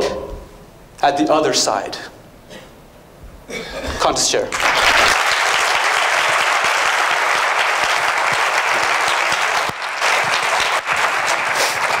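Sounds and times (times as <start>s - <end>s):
audience applauding: 4.5s - 12.0s.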